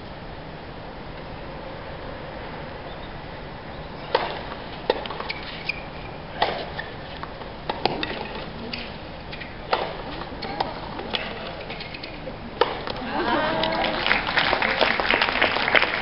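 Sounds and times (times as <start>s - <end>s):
tennis ball bouncing: 4.0s - 13.8s
tennis racket hitting ball: 4.1s - 13.8s.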